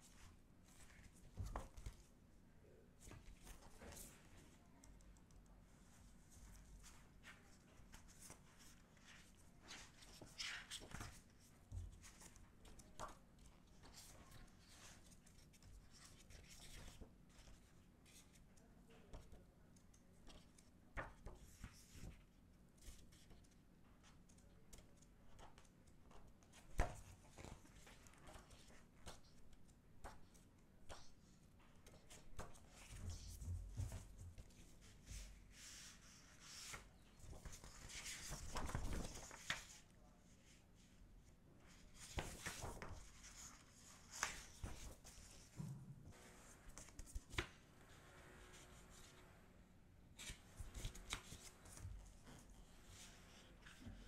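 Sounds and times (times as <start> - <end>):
photobook pages turning: 7.8 - 18.4, 32.1 - 39.8, 41.7 - 45.5, 46.7 - 47.6, 50.2 - 52.1
paper and card rustling: 31.9 - 39.8, 41.7 - 45.6, 46.6 - 47.6.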